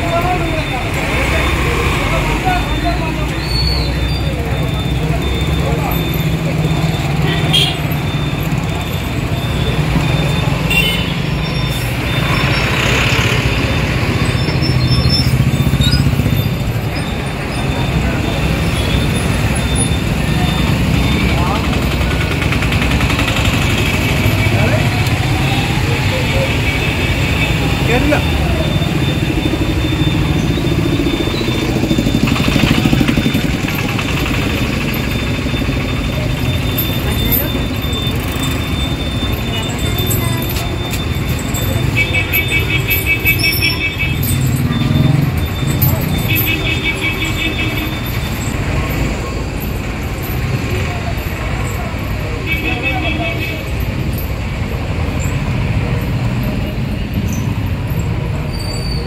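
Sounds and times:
heavy engine running: 0:00.0 - 0:52.6.

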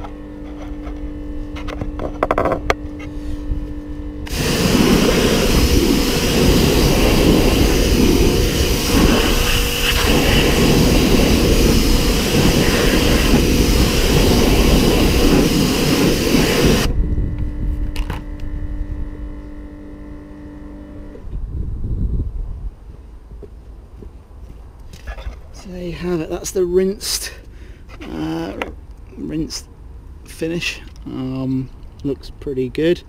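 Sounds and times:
pressure washer spraying: 0:04.3 - 0:16.9.

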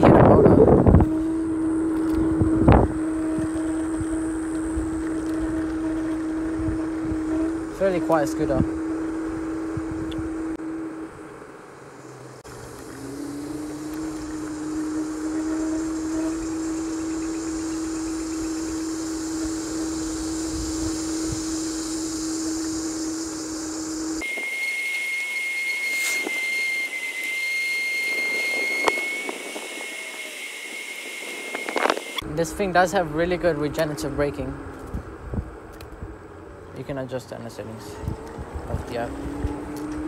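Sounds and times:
tyre and wind noise: 0:00.0 - 0:10.6, 0:33.6 - 0:36.6, 0:38.0 - 0:40.0
electric scooter motor whining: 0:00.0 - 0:40.0.

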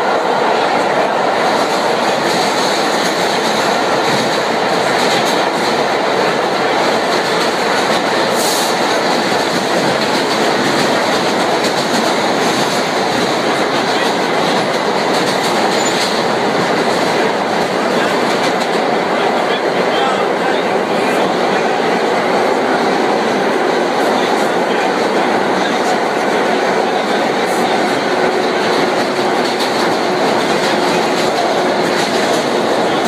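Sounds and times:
steel wheels rumbling on rail: 0:00.0 - 0:33.0.

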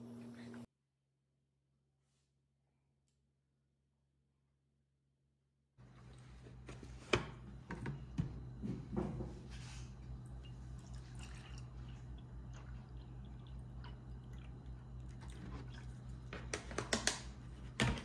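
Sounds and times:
milk pouring into a glass: 0:10.3 - 0:16.3.

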